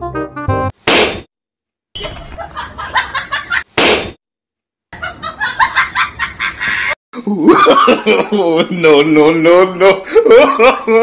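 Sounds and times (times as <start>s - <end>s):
balloon popping: 0.8s - 1.3s, 3.7s - 4.2s
laugh-like comic sound: 6.3s - 8.6s.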